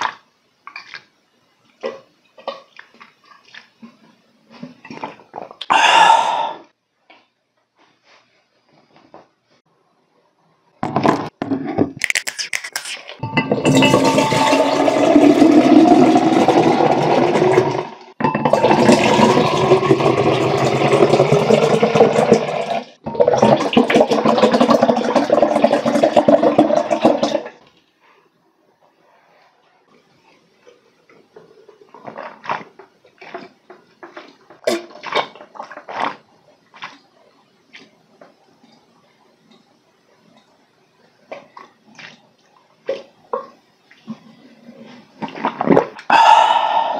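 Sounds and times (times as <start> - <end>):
person gulping a drink: 1.8 - 7.3, 12.0 - 22.4, 23.1 - 27.6, 30.7 - 37.1, 41.3 - 46.9
juice pouring into a glass: 13.5 - 27.6.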